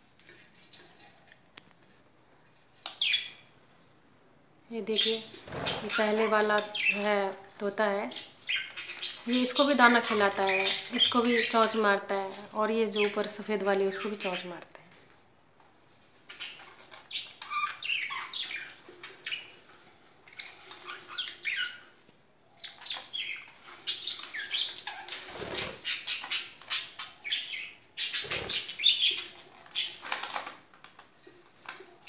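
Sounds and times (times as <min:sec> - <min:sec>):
budgerigars chirping: 0:08.2 - 0:11.6, 0:16.3 - 0:19.6, 0:22.6 - 0:30.1.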